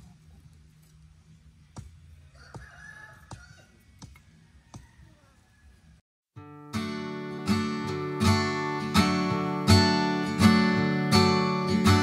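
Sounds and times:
rooster crowing: 2.2 - 6.0.

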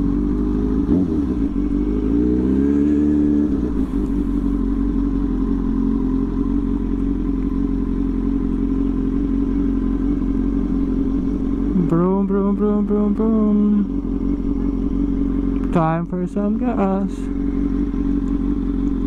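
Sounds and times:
motorcycle engine accelerating: 0.0 - 19.0.

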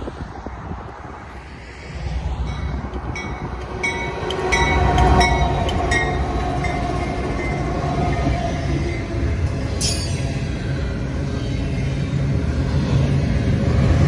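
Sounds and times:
diesel locomotive rumble: 0.0 - 14.0
freight cars rolling past: 0.0 - 14.0.

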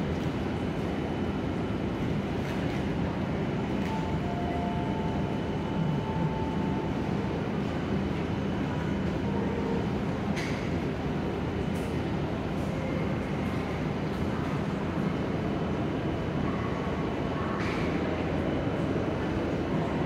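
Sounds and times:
tram humming: 3.1 - 12.6.

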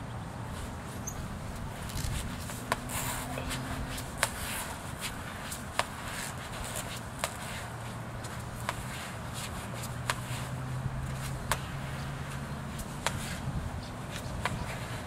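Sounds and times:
low background noise: 0.0 - 15.0
football slapping on concrete: 2.4 - 3.0, 3.9 - 7.6, 11.0 - 13.4.

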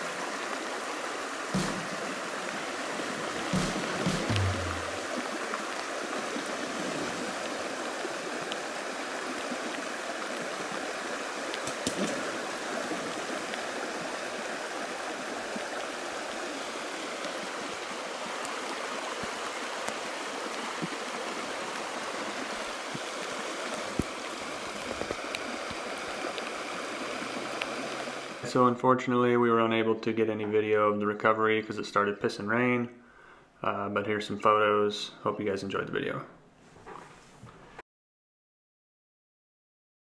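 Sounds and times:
stream running over gravel: 0.0 - 28.4.

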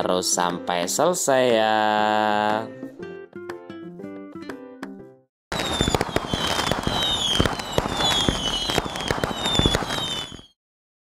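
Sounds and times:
fireworks crackling and popping: 5.5 - 10.6
falling whistles: 5.6 - 10.6.

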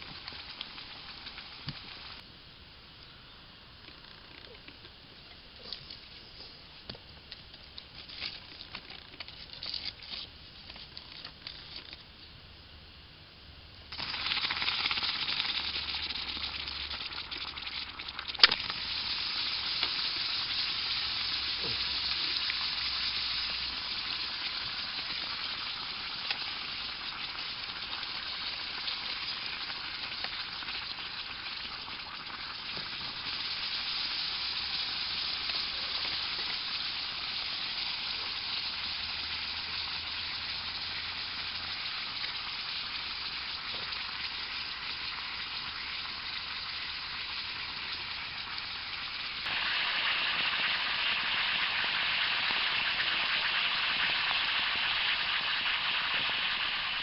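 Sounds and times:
water boiling in a clay pot: 0.0 - 2.3, 13.8 - 57.0.

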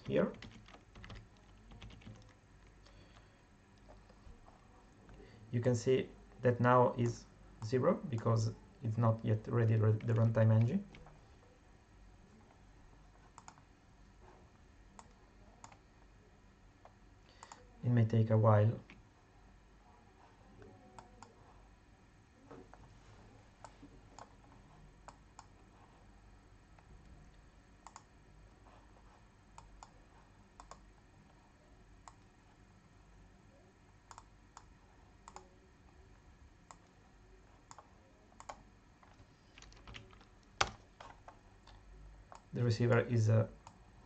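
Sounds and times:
computer mouse and keyboard clicks: 0.3 - 5.2, 13.3 - 13.6, 27.8 - 28.1, 30.6 - 30.8, 34.1 - 35.5, 37.6 - 43.0.

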